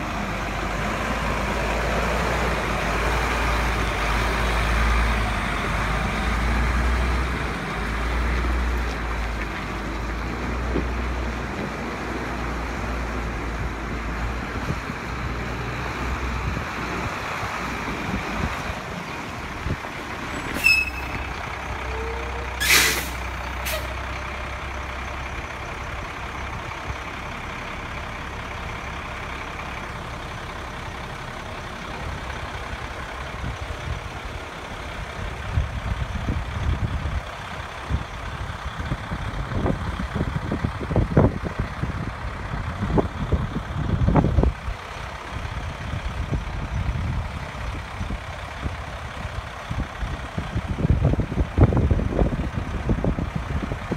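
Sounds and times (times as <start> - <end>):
truck engine running: 0.0 - 53.9
air brake hisses: 20.5 - 21.2, 22.6 - 23.9.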